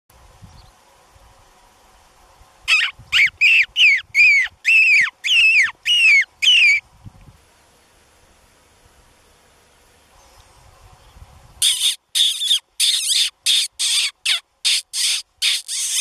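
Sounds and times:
mouth call squealing: 0:02.7 - 0:06.8, 0:11.6 - 0:16.0.

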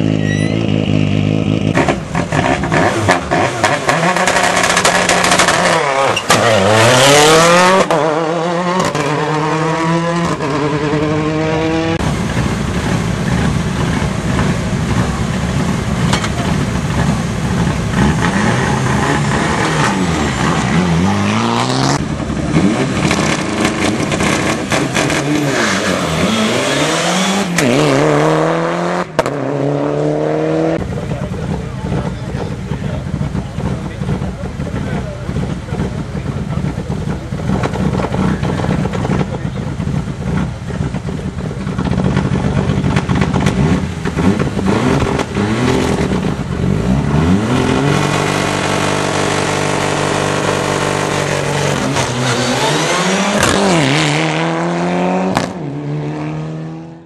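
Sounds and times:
rally car accelerating through gears: 0:00.0 - 0:12.1, 0:12.9 - 0:57.0
rally engine idling roughly: 0:30.9 - 0:43.6.

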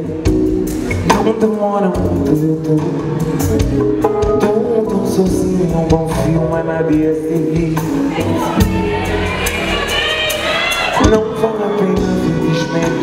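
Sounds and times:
live band music: 0:00.0 - 0:13.0
man singing into microphone: 0:01.0 - 0:03.5, 0:04.2 - 0:08.4, 0:11.0 - 0:13.0.

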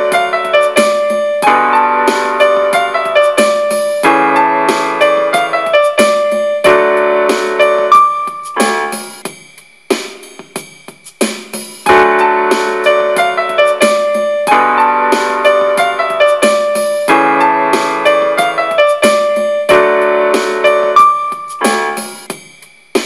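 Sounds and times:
keyboard chords and melody: 0:00.0 - 0:09.2, 0:11.8 - 0:22.3.

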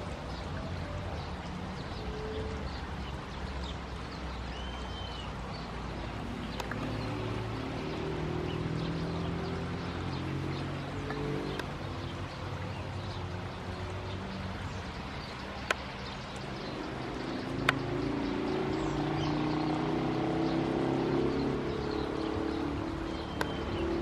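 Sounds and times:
small birds chirping: 0:00.0 - 0:24.0
vehicle engine humming: 0:05.9 - 0:24.0.

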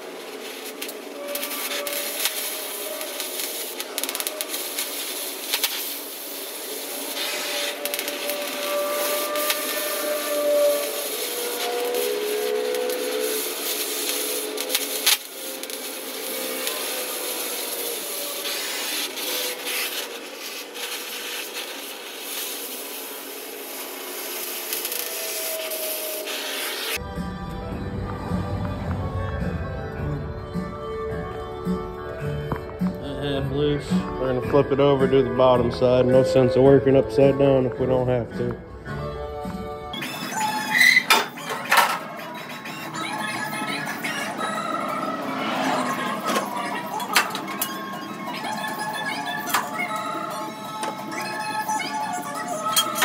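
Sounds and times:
hand grinder grinding steel: 0:00.8 - 0:06.1, 0:07.0 - 0:22.9.

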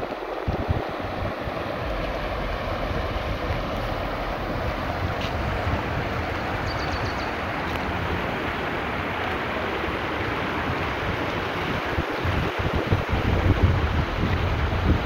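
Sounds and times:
river water rushing: 0:00.0 - 0:15.0
wind buffeting microphone: 0:00.0 - 0:15.0
faint high chirps: 0:06.6 - 0:07.4.

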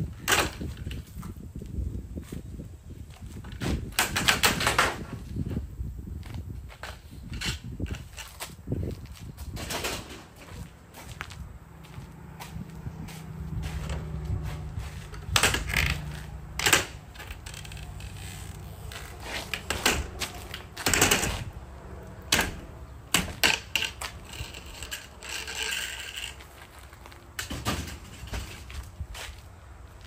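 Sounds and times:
sharp knocks and clatter: 0:22.3 - 0:26.4, 0:27.4 - 0:28.8.

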